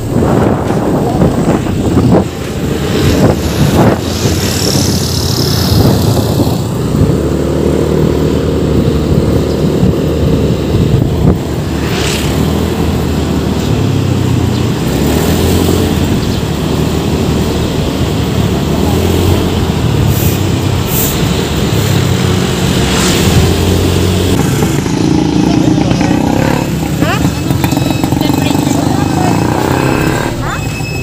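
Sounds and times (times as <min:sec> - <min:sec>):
wind buffeting microphone: 0:00.0 - 0:18.5
motorcycle engine running: 0:00.0 - 0:20.0, 0:21.4 - 0:31.0
road noise: 0:00.0 - 0:31.0.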